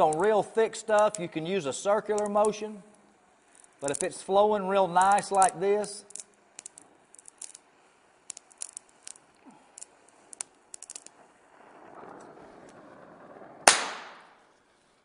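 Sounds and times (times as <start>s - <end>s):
torch flame hissing: 0.0s - 13.5s
faint clicks and crackles: 0.0s - 15.0s
sharp loud pop: 13.6s - 14.4s.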